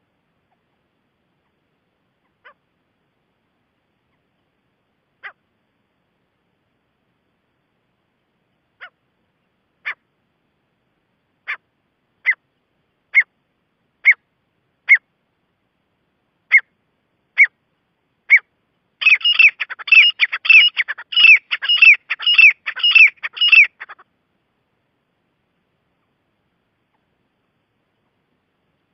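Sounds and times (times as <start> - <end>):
francolin calling: 5.2 - 5.4, 11.4 - 13.4, 14.0 - 15.1, 16.5 - 17.6, 18.2 - 24.1.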